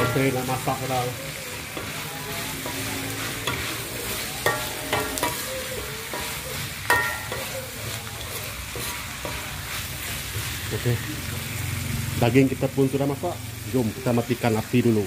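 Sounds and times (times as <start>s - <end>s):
spatula clanging against wok: 0.0s - 0.9s, 1.6s - 9.8s
metal spatula scraping a wok: 0.0s - 11.0s
meat sizzling in a wok: 0.0s - 15.0s.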